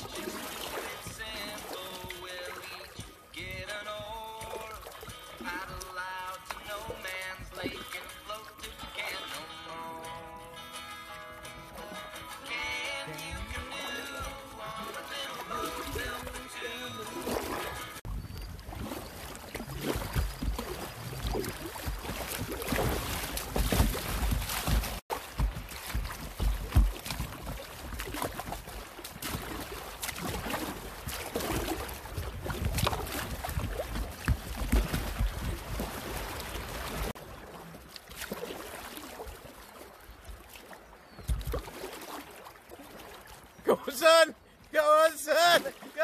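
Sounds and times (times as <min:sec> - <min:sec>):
river water rushing and splashing: 0:00.0 - 0:46.0
wind buffeting on microphone: 0:31.6 - 0:36.0.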